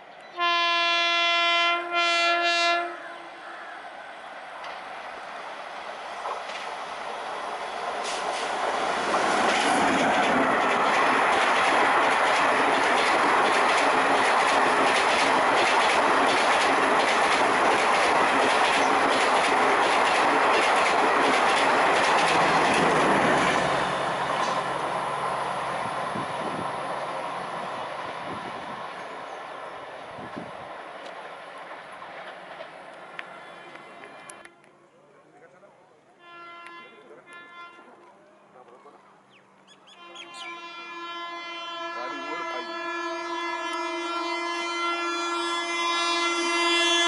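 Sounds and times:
rush of passing train coaches: 0.0s - 35.0s
clickety-clack of wheels: 8.0s - 23.5s, 31.0s - 34.4s.

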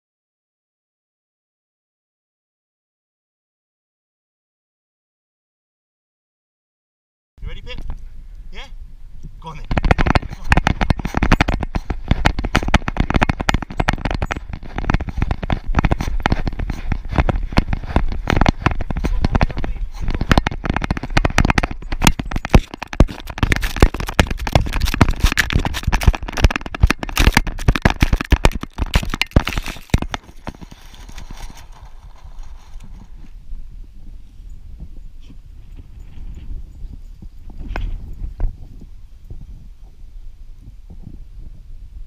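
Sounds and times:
wind rushing over microphone: 7.4s - 42.0s
collar camera clattering and thumping: 9.6s - 33.3s.

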